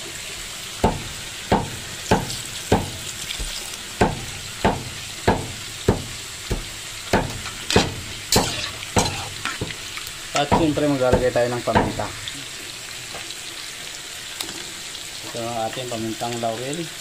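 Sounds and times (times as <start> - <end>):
food sizzling in a pan: 0.0 - 17.0
metal spatula scraping a wok: 7.4 - 9.7.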